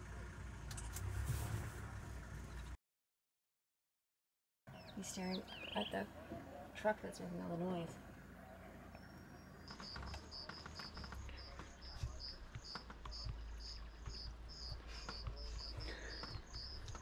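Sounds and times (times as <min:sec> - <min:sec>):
crickets chirping: 0:09.0 - 0:17.0.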